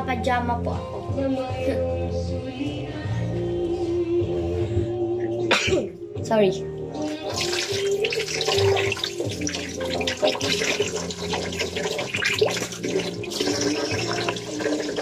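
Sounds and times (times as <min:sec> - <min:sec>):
hands splashing water on face: 0:07.1 - 0:15.0
tap water running into sink: 0:07.1 - 0:15.0.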